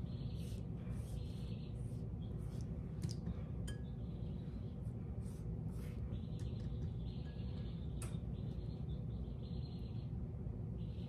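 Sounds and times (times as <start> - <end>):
low room hum: 0.0 - 11.0
pastry brush scratching: 0.1 - 2.7.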